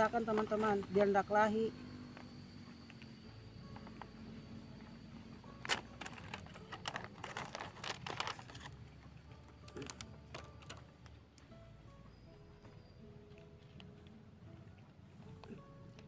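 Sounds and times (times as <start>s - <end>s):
crisp crackles and clicks: 5.5s - 11.5s.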